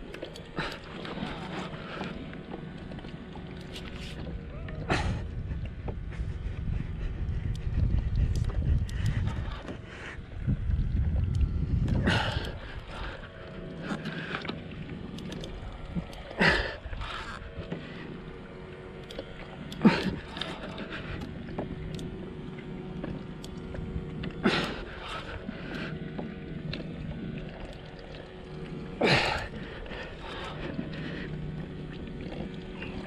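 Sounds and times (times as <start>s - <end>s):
water lapping against kayak: 0.0s - 33.0s.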